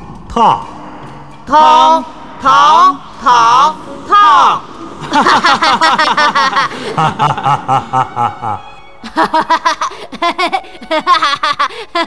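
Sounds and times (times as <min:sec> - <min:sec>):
background music: 0:00.0 - 0:12.0
loud hearty laughter: 0:05.0 - 0:12.0.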